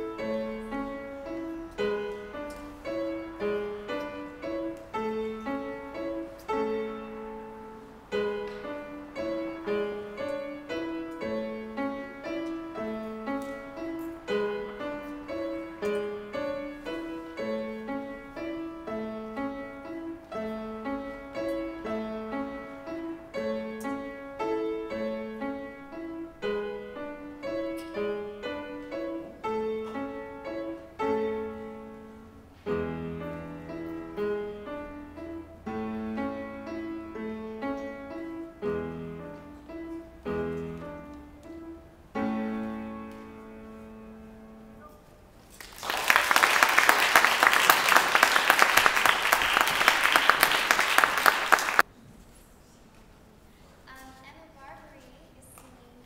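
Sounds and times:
grand piano playing: 0.0s - 51.9s
audience applause: 45.6s - 51.8s.

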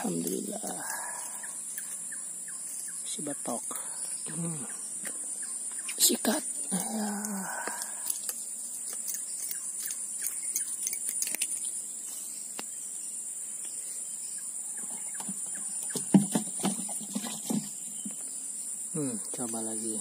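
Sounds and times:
insect chorus: 0.0s - 20.0s
dull knocks: 15.1s - 17.7s.

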